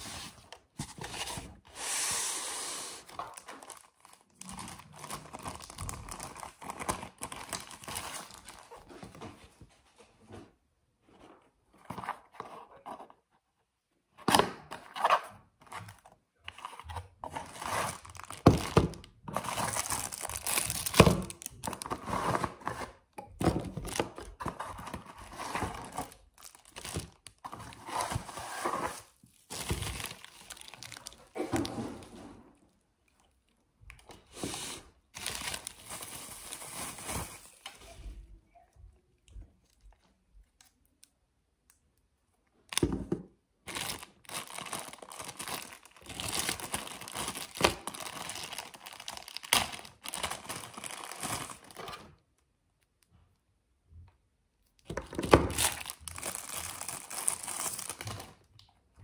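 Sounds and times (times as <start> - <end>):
bubble-wrap and plastic crinkling: 2.8 - 9.2, 16.6 - 31.7, 34.1 - 38.0, 43.6 - 52.1, 55.0 - 58.7.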